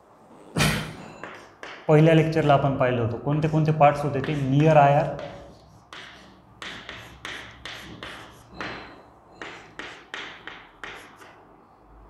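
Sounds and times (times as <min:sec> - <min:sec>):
chalk tapping and scraping on chalkboard: 0:01.2 - 0:01.9, 0:03.4 - 0:11.4.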